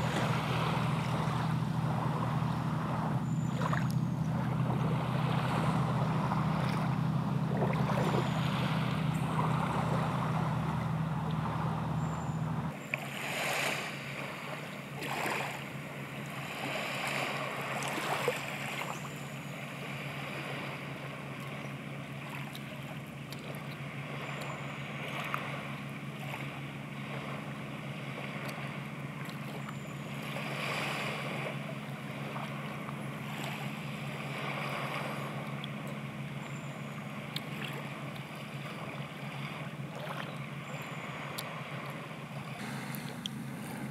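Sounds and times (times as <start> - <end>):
low steady hum: 0.0 - 43.9
surf washing: 0.0 - 43.9
wind: 0.0 - 43.9.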